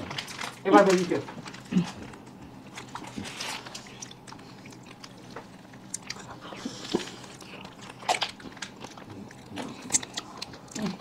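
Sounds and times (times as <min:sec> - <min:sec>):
mouth sounds eating ice cream: 0:02.9 - 0:11.0.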